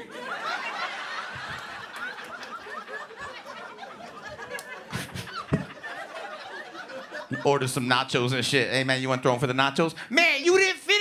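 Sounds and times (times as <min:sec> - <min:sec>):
audience laughing: 0:00.0 - 0:08.3.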